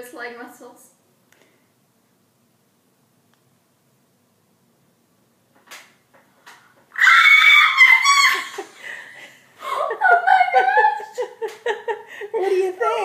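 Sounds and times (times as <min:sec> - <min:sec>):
girl shrieking: 0:07.0 - 0:08.8
girl squealing and laughing: 0:07.0 - 0:09.0, 0:09.6 - 0:11.4.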